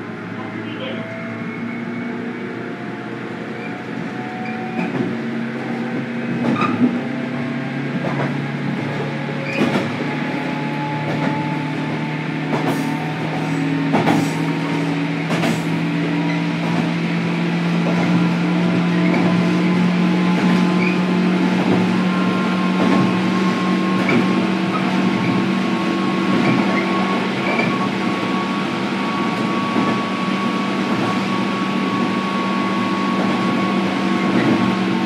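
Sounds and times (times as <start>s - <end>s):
train motor hum: 1.8s - 35.0s.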